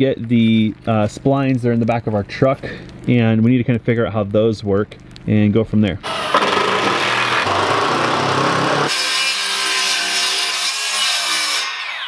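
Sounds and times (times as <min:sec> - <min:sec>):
circular saw cutting wood: 0:06.0 - 0:12.0
hand-held power tool on wood: 0:06.0 - 0:12.0.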